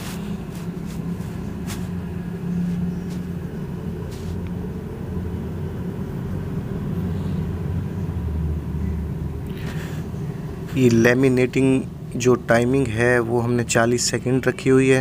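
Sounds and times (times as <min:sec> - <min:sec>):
vacuum pump humming: 0:00.0 - 0:05.8.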